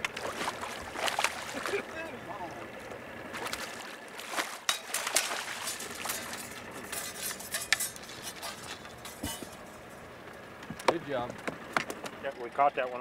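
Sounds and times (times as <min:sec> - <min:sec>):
fish splashing in a net: 0:00.0 - 0:01.9, 0:03.3 - 0:06.7
gear clinking and knocking: 0:04.7 - 0:09.9.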